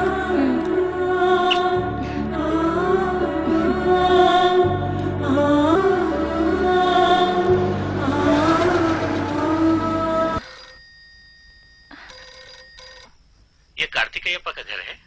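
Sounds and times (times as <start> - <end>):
film score with sung melody: 0.0 - 10.4
telephone ringing faintly: 10.4 - 15.0.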